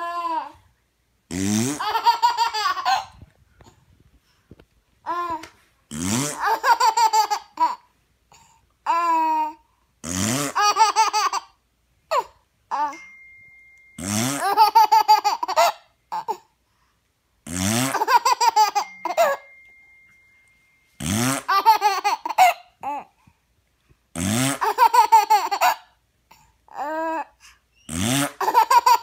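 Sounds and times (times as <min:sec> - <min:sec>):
baby laughing: 0:01.7 - 0:03.2, 0:06.2 - 0:07.9, 0:08.8 - 0:09.6, 0:10.4 - 0:13.0, 0:14.3 - 0:16.5, 0:17.9 - 0:19.4, 0:21.4 - 0:23.1, 0:24.5 - 0:27.3, 0:28.3 - 0:29.0.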